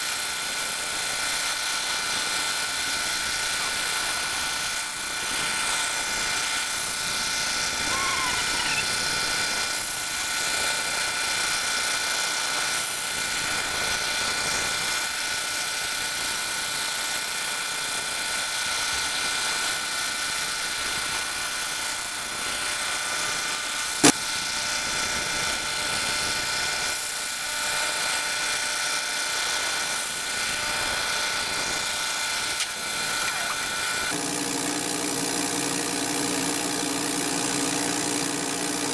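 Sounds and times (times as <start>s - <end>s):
laser cutter whirring hiss: 30.7s - 34.2s.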